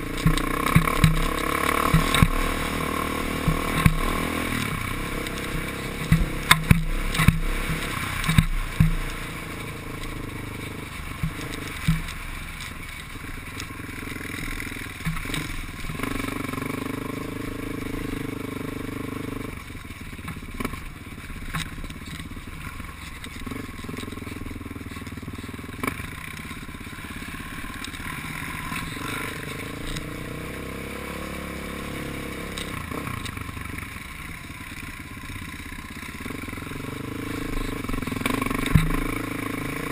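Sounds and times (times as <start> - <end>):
knocks and rattles over rocks: 0.0 - 17.8, 19.5 - 31.7, 35.8 - 39.9
atv engine revving: 0.0 - 39.9.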